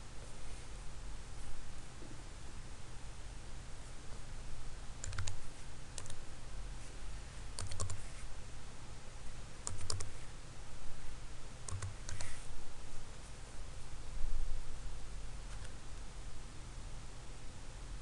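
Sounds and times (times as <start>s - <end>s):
keyboard keys clicking: 5.0s - 5.4s, 6.0s - 6.2s, 7.6s - 8.0s, 9.6s - 10.1s, 11.7s - 12.3s.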